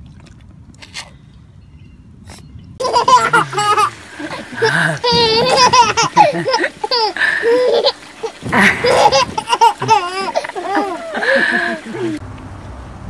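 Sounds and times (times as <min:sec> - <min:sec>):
baby laughing: 0:02.8 - 0:12.2.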